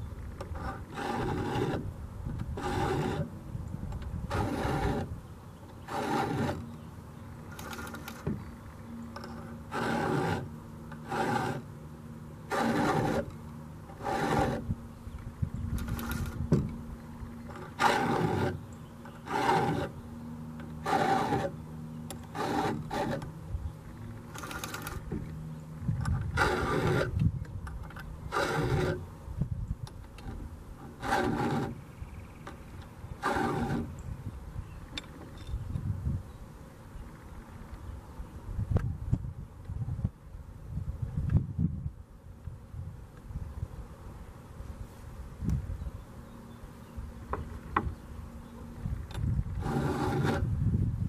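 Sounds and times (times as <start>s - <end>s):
file rasping on chainsaw chain: 0.6s - 1.8s, 2.6s - 3.3s, 4.3s - 5.1s, 5.8s - 6.7s, 9.3s - 11.7s, 12.5s - 14.7s, 17.5s - 20.0s, 20.8s - 21.6s, 22.2s - 23.3s, 26.3s - 27.2s, 28.3s - 29.0s, 30.8s - 31.8s, 33.2s - 34.0s, 49.6s - 50.5s.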